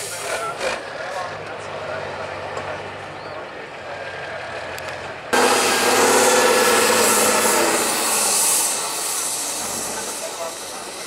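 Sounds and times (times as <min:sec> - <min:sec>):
truck engine running hard: 0:00.0 - 0:11.0
low engine hum: 0:00.2 - 0:10.1
strong hiss: 0:05.4 - 0:11.0.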